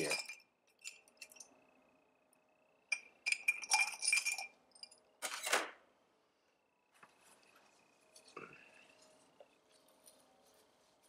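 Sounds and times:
metal parts clinking in a mug: 0.0 - 1.6, 2.9 - 5.5.

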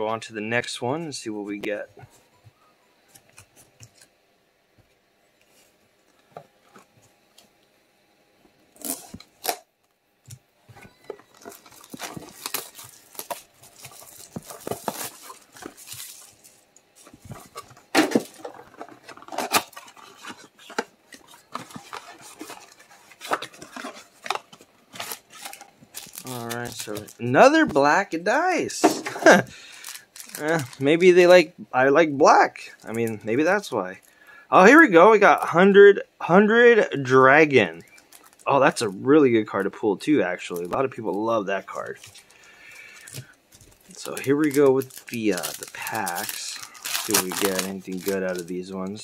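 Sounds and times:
box clicks and clatters: 11.0 - 27.2, 43.1 - 48.5
plastic wrap crinkling and tearing: 11.1 - 28.0, 29.2 - 31.4, 37.7 - 39.0, 40.5 - 49.0.

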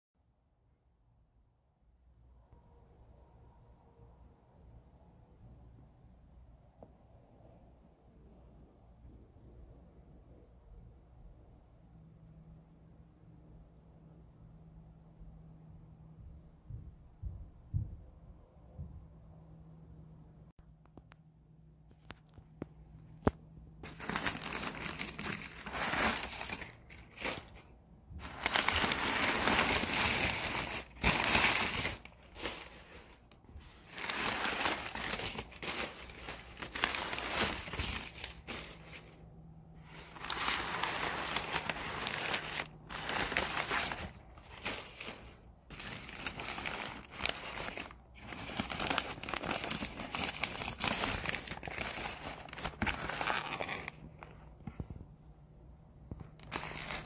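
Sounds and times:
newspaper crinkling and rustling: 23.0 - 54.8, 56.2 - 57.0.

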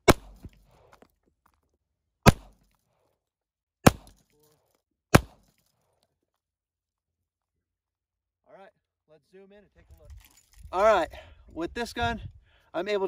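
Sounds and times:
pistol shots: 0.0 - 0.6, 2.2 - 2.6, 3.8 - 4.2, 5.1 - 5.5.

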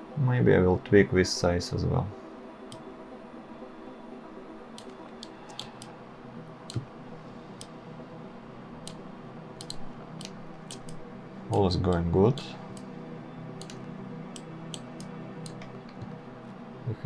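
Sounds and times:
faint steady hum: 0.0 - 17.0
computer mouse clicks: 4.7 - 5.9, 9.6 - 11.0, 13.6 - 16.0.

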